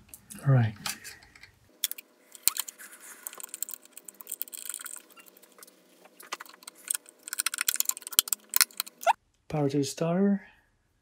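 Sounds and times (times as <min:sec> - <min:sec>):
crinkly rustling: 0:02.4 - 0:09.0.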